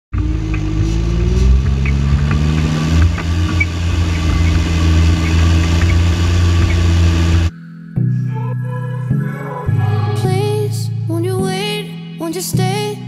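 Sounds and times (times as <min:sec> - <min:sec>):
tractor diesel engine running: 0:00.1 - 0:07.5.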